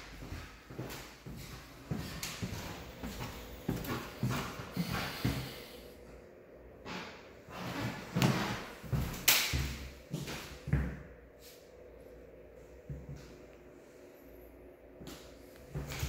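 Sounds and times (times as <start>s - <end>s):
footsteps on hardwood floor: 0.1s - 5.6s, 7.6s - 11.0s, 15.7s - 16.0s.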